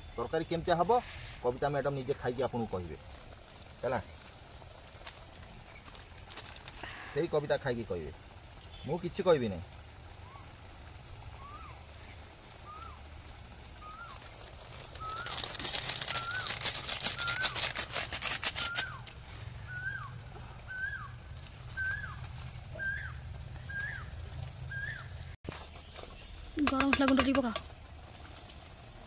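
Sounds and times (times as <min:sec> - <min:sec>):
crackling and rustling: 0:00.0 - 0:29.0
bird call: 0:11.3 - 0:13.1, 0:13.8 - 0:17.7, 0:18.4 - 0:25.3.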